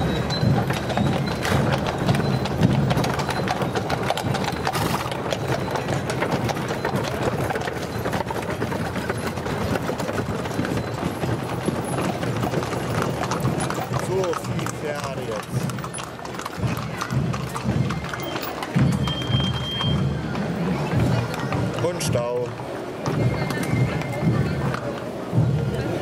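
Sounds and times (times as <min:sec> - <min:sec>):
carriage wheels rumbling on stones: 0:00.0 - 0:20.1
horse hooves on cobblestones: 0:00.0 - 0:26.0.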